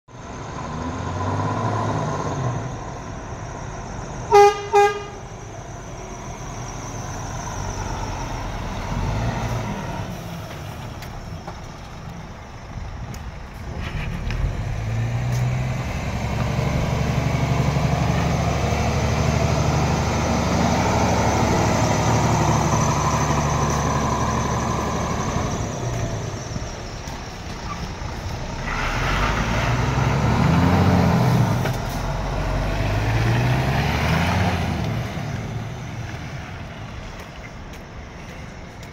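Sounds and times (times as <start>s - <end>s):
diesel truck engine running: 0.1s - 38.9s
truck horn toots: 4.3s - 5.3s.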